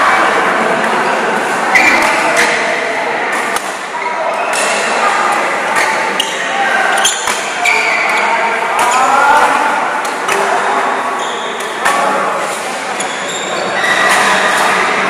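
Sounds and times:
shoes squeaking on court: 5.8s - 9.2s, 12.4s - 14.8s.

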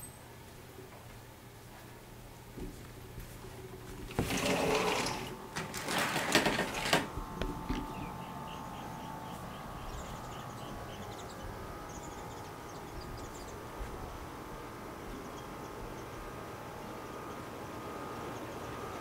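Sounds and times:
sliding glass door rolling open: 4.0s - 8.0s.

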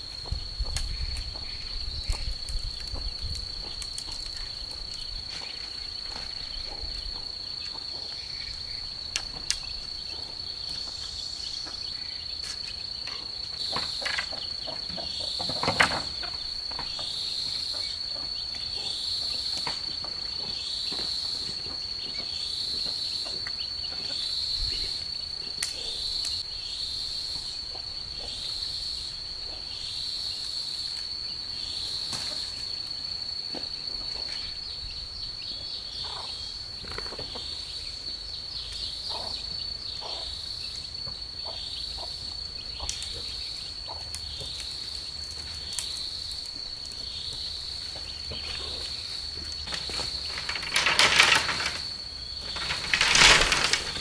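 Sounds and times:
insects calling in chorus: 0.0s - 54.0s
bamboo poles knocking and rustling: 12.5s - 17.2s, 49.4s - 54.0s.

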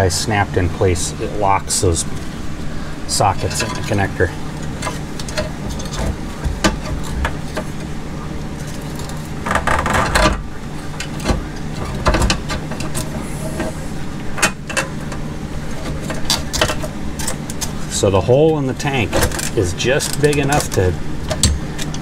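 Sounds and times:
steady low hum: 0.0s - 22.0s
clicks knocks and scraping: 3.4s - 7.9s, 8.6s - 13.8s, 19.0s - 22.0s
rustling clatter: 4.6s - 13.8s.

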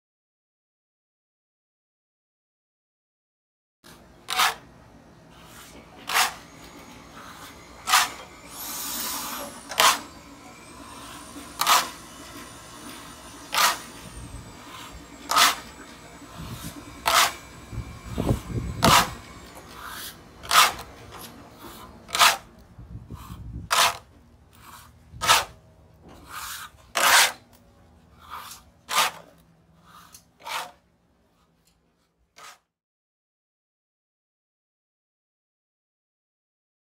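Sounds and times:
trowel scraping wet stucco: 3.9s - 4.7s, 5.3s - 32.7s.

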